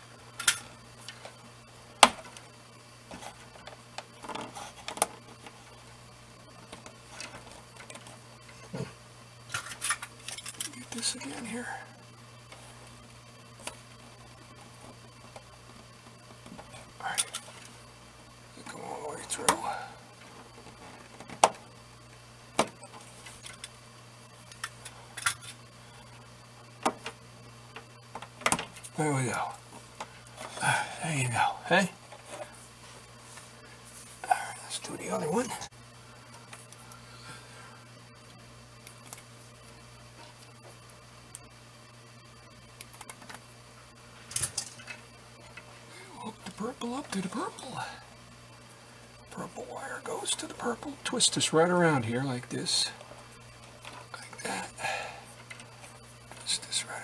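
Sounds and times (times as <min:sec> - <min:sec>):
steady low hum: 0:00.0 - 0:57.0
wires clicking and rattling: 0:09.4 - 0:11.1, 0:44.2 - 0:45.7.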